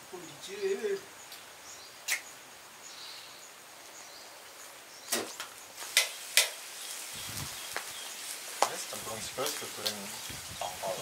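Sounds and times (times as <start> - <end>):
wood fire hissing: 0.0 - 11.0
sharp cracks of fire: 5.1 - 10.8.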